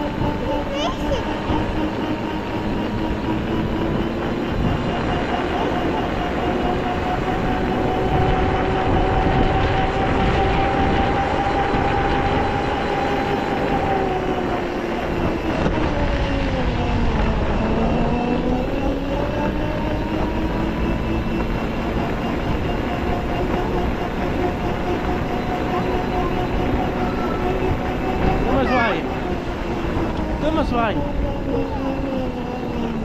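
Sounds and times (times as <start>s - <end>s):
quad bike engine running: 0.0s - 33.0s
road rumble: 0.0s - 33.0s
wind: 0.0s - 33.0s.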